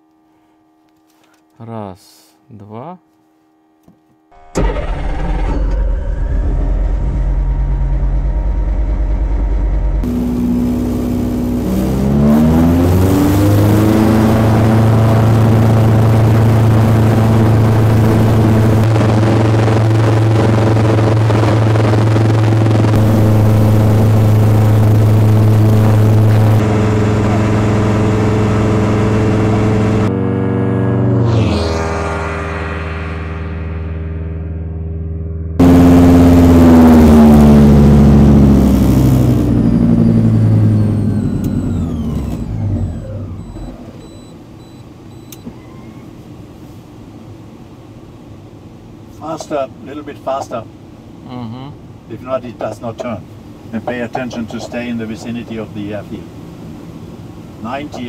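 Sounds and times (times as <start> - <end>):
propeller engine starting and running: 4.3 - 45.9.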